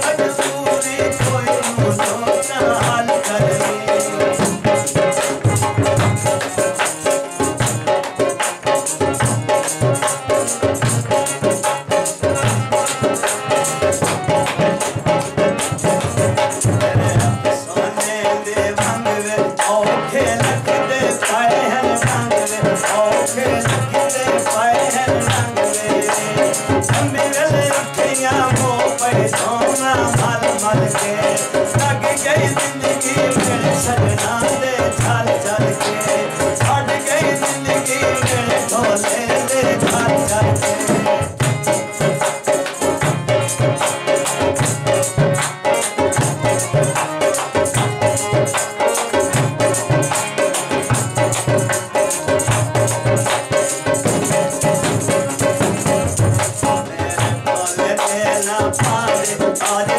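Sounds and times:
drum beat: 0.5 - 21.0, 24.6 - 59.9.

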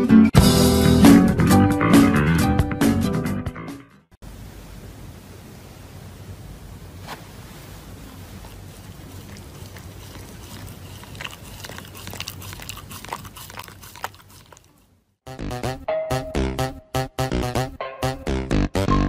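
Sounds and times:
steady low hiss: 4.2 - 10.4
dog chewing paper: 8.0 - 15.0.

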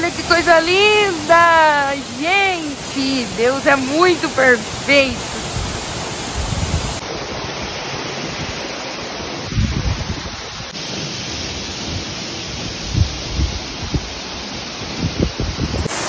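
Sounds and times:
waterfall rushing: 0.0 - 16.0
wind thumps on microphone: 5.4 - 7.0, 9.4 - 10.6, 12.8 - 14.1, 14.9 - 15.9.

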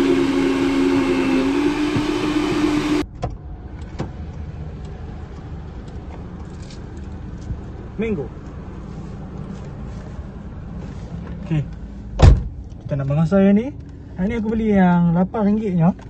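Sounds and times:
blender motor whine: 0.0 - 3.0.

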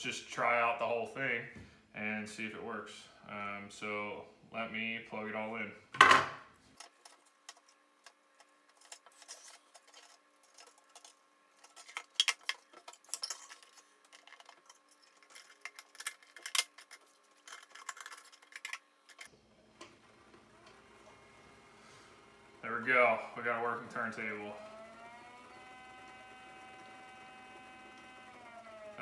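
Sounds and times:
small motor humming: 23.8 - 29.0.

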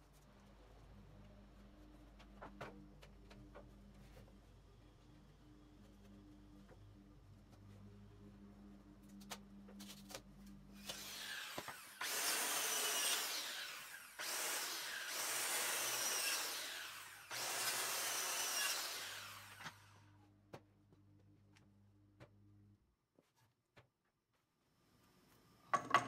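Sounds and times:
circular saw cutting timber: 10.8 - 20.0.

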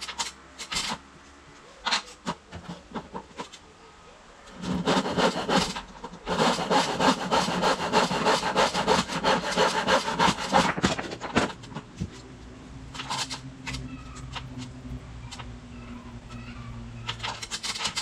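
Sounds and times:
hand saw cutting timber: 4.6 - 11.5.

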